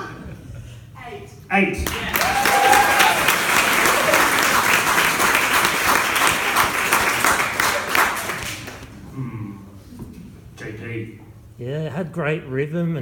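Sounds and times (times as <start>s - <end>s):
audience clapping: 1.8s - 9.0s.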